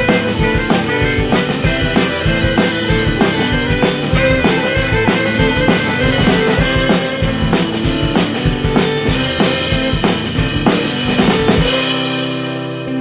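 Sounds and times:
band playing rock instrumental: 0.0 - 13.0.

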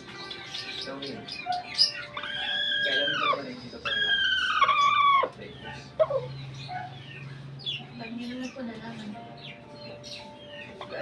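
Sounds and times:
long drawn-out animal calls: 2.2 - 5.4.

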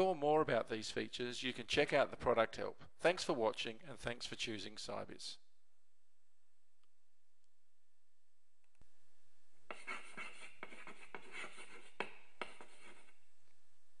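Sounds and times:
pen writing scratchy strokes: 9.7 - 13.2.

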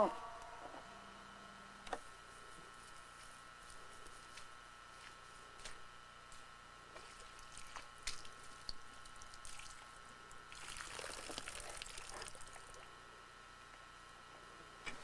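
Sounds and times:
water pouring with crackling: 7.0 - 12.8.

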